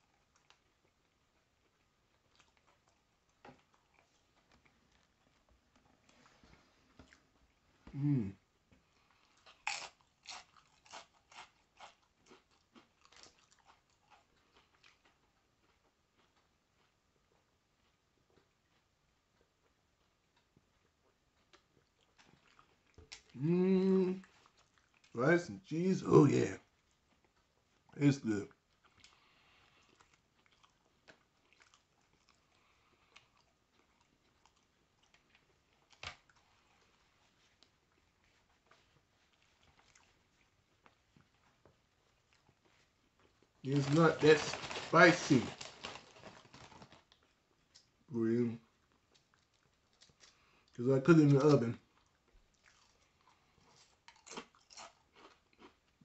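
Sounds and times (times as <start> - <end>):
chewing crunchy chips: 0.0 - 56.0.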